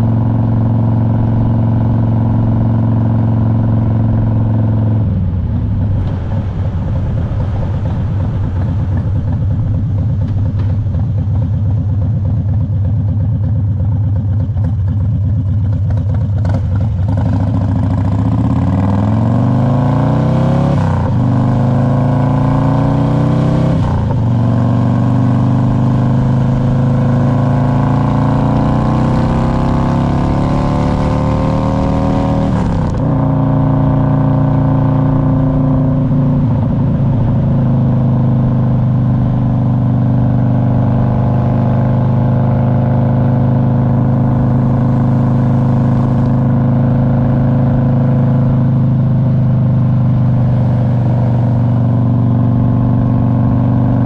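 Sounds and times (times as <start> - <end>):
motorcycle engine accelerating: 0.0 - 54.0.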